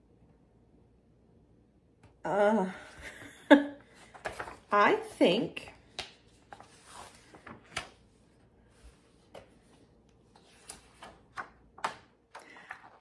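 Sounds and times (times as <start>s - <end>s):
paper pages rustling: 3.9s - 4.8s, 5.7s - 13.0s.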